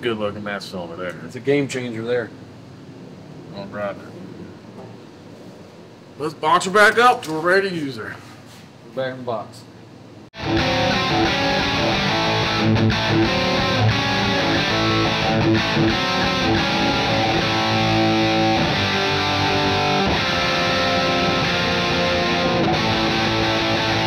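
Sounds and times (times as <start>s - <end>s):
rock music with electric guitar: 10.4s - 24.0s.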